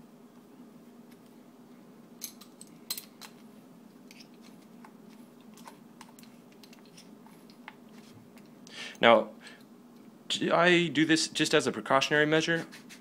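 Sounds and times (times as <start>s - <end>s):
metal parts clicking and tapping: 2.2s - 3.4s.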